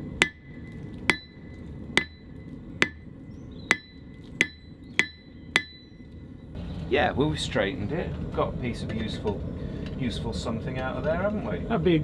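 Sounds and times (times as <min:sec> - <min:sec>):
hammer striking steel on anvil: 0:00.2 - 0:03.1, 0:03.7 - 0:06.2.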